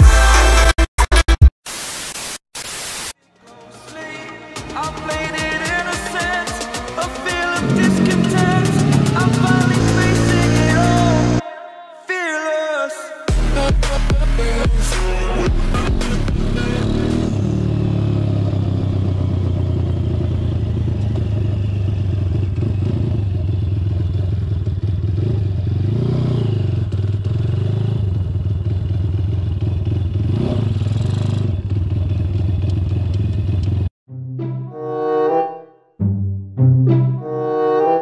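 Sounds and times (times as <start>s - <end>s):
minibike engine revving: 6.6s - 11.4s, 15.5s - 33.9s.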